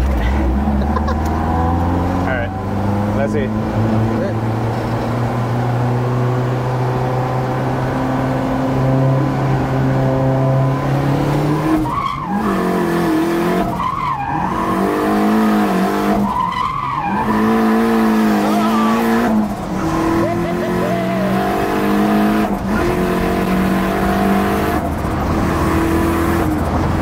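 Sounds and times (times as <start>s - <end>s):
truck engine revving: 0.0s - 27.0s
tyres squealing: 16.2s - 21.7s.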